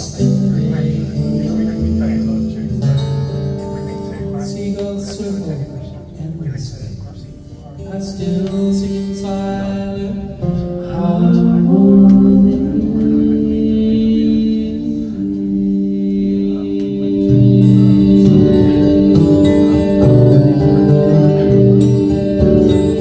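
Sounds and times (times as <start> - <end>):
music with singing from loudspeakers: 7.6 - 23.0.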